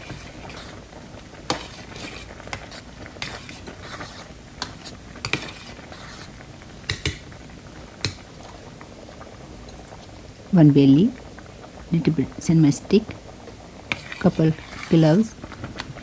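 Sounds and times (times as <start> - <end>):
spoon stirring rice: 0.0 - 7.4, 13.0 - 16.0.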